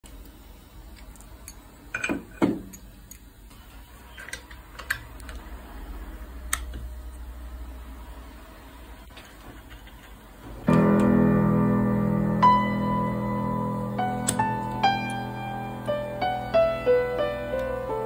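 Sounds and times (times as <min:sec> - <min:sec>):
faint steady hum: 0:00.0 - 0:18.0.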